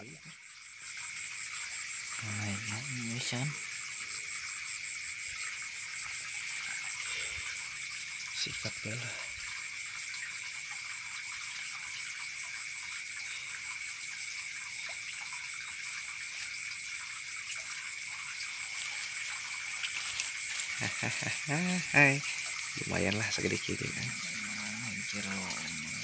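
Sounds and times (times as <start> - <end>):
insects chirping at night: 0.0 - 26.0
leafy plants rustling: 18.7 - 21.5.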